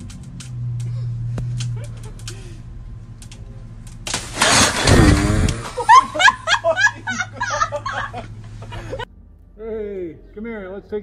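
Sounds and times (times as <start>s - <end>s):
hammock chair crashing down: 4.1s - 5.8s
people laughing: 5.6s - 9.1s.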